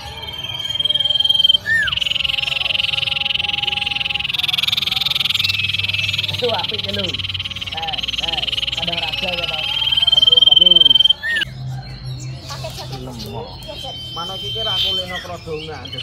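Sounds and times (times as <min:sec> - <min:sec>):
bird whistling call: 0:00.0 - 0:11.6, 0:12.4 - 0:16.0
high pulsing trill: 0:00.0 - 0:11.6.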